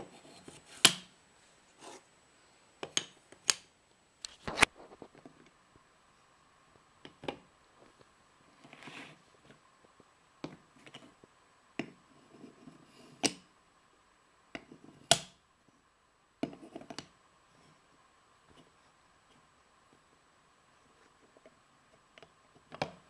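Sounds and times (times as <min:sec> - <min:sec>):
wooden scrape: 0:01.7 - 0:02.1, 0:08.6 - 0:09.2.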